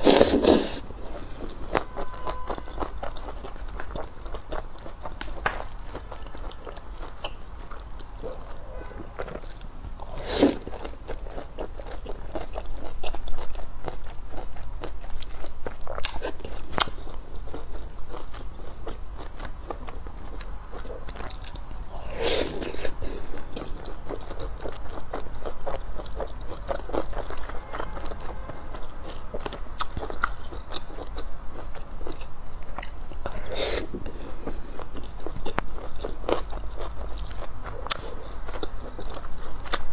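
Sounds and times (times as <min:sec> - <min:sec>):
slurping: 0:00.0 - 0:01.4, 0:08.2 - 0:11.0
wet chewing of noodles: 0:00.0 - 0:39.9.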